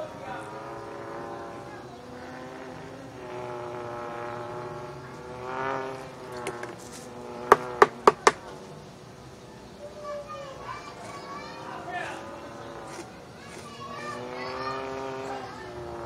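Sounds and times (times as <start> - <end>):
vehicle engine running: 0.0 - 9.9, 10.6 - 16.0
sharp knocks: 6.4 - 6.8, 7.5 - 8.5.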